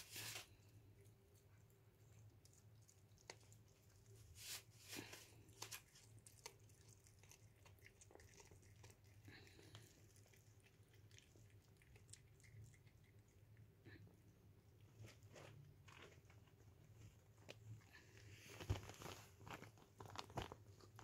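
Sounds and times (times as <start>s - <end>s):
cat chewing with wet clicks: 0.9s - 4.2s, 5.4s - 14.5s.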